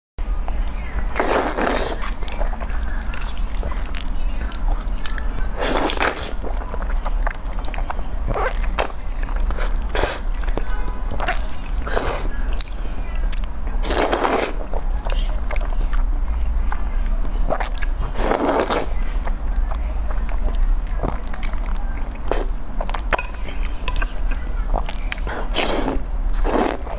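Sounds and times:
noodles slurping: 1.0s - 7.5s, 13.8s - 16.1s, 17.4s - 19.1s, 23.2s - 26.9s.

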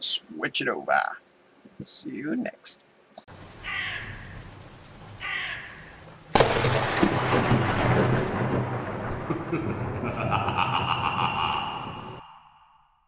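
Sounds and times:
thunderclap rumbling: 3.3s - 12.3s
crow cawing: 3.6s - 4.6s, 5.2s - 6.1s.

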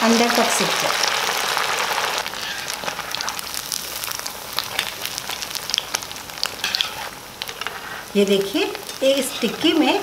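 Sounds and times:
patties sizzling in hot oil: 0.0s - 10.0s.

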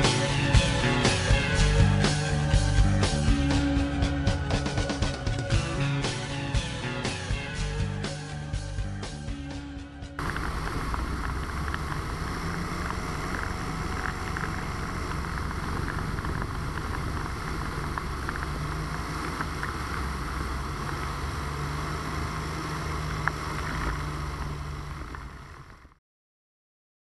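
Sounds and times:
wind rush on microphone: 10.2s - 20.9s
two-stroke engine running: 10.2s - 26.0s.

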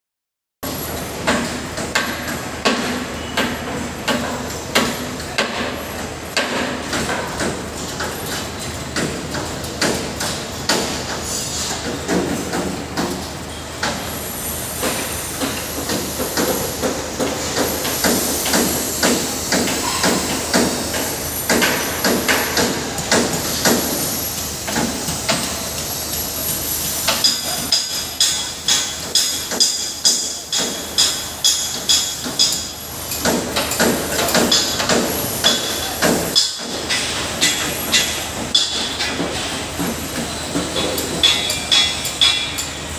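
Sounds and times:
construction site din: 0.6s - 42.9s
metallic knocks: 40.8s - 42.7s.

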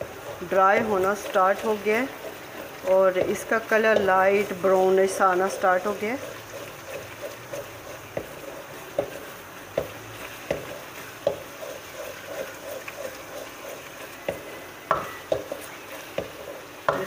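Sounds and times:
spatula knocking against pan: 0.0s - 4.4s, 6.6s - 11.6s, 14.2s - 17.0s
low sizzle: 0.0s - 17.0s
spatula scraping pan: 0.0s - 17.0s.

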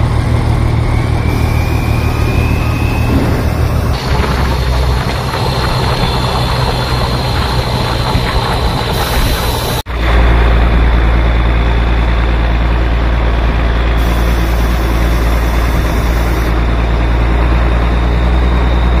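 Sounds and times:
truck engine droning: 0.0s - 19.0s
hiss: 1.3s - 9.9s, 14.0s - 16.6s.

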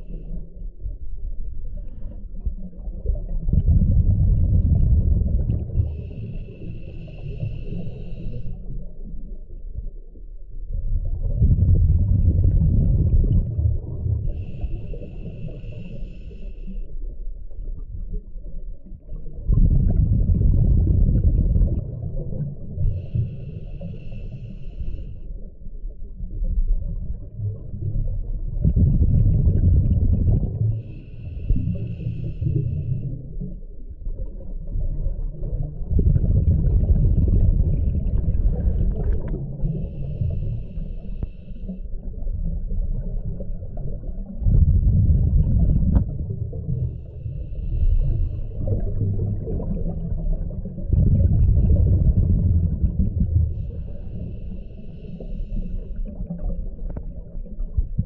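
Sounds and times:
hissing inhale through regulator: 5.8s - 8.9s, 14.2s - 17.1s, 22.7s - 25.5s, 30.3s - 33.6s, 38.1s - 42.2s, 46.7s - 49.7s, 53.0s - 57.1s
bubbling burst of exhaled air: 47.6s - 53.9s.

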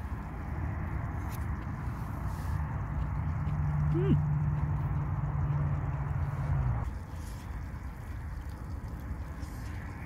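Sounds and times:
man humming while chewing: 3.8s - 4.3s.

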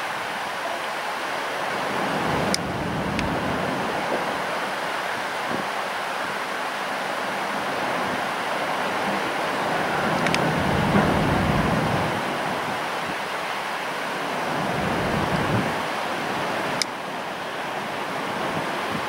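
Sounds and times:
expressway traffic hiss: 0.0s - 19.0s
wind rushing over microphone: 1.7s - 6.5s, 7.5s - 13.4s, 14.2s - 16.8s.

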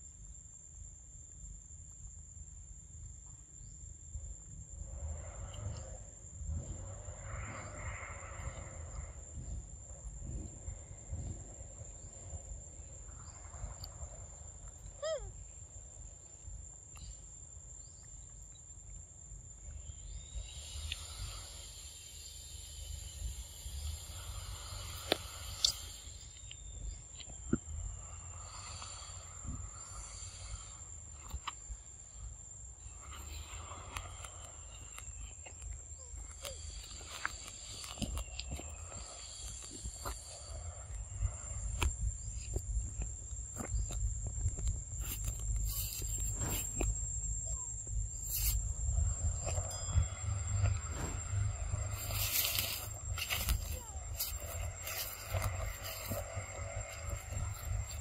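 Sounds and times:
insects droning: 0.0s - 58.0s
faint low rumble: 0.3s - 20.9s, 22.8s - 58.0s
low rumble: 41.0s - 58.0s.

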